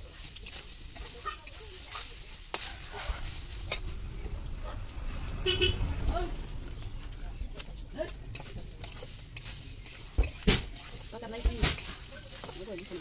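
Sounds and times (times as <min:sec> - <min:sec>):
metal spatula scraping a pan: 0:00.0 - 0:03.9, 0:08.3 - 0:13.0.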